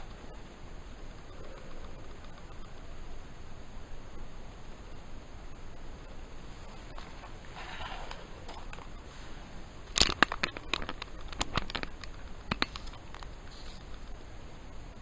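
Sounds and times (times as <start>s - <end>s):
sharp clicks and taps: 10.0s - 14.2s.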